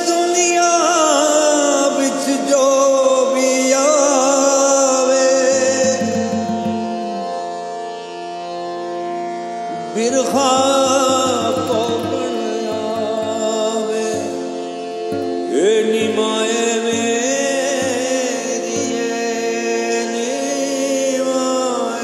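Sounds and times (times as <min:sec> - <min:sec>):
man singing: 0:00.0 - 0:07.4, 0:09.7 - 0:22.0
guitar accompaniment: 0:03.9 - 0:08.5, 0:09.7 - 0:22.0.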